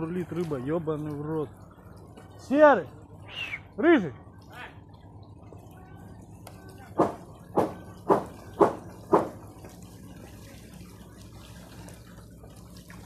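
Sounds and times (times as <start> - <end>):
faint water sounds: 0.0 - 13.0
footsteps on wooden planks: 7.0 - 9.4.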